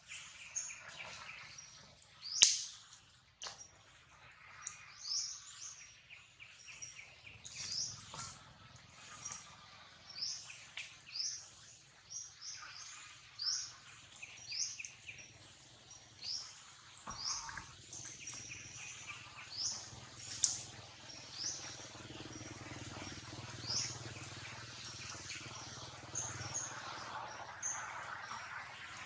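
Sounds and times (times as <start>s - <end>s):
steady low hum: 4.0s - 29.0s
bird chirping: 4.3s - 28.9s.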